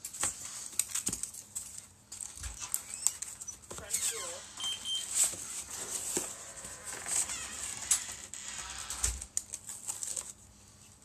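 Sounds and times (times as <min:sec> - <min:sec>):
cardboard and foam rustling: 0:03.3 - 0:08.4, 0:09.0 - 0:11.0.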